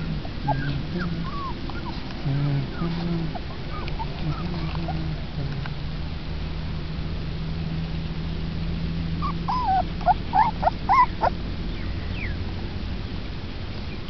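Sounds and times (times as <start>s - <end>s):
puppy whimpering: 0.0s - 5.4s, 9.2s - 11.4s.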